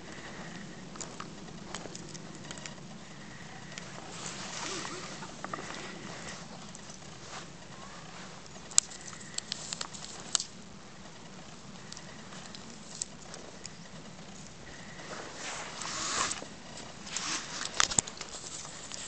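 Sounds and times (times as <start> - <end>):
footsteps crunching in snow: 3.0 - 9.4, 14.6 - 19.0.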